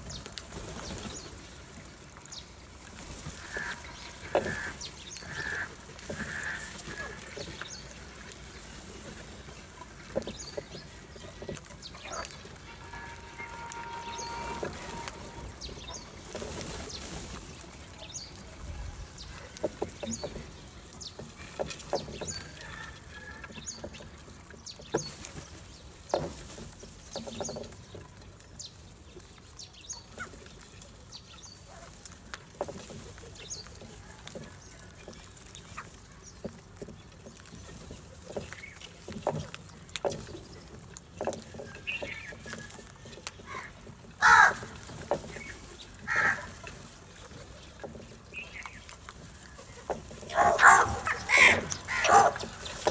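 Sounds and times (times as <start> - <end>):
beaks pecking at dishes: 2.4 - 52.9
crows calling: 3.4 - 7.4, 12.1 - 16.2, 43.4 - 46.8, 50.3 - 52.9.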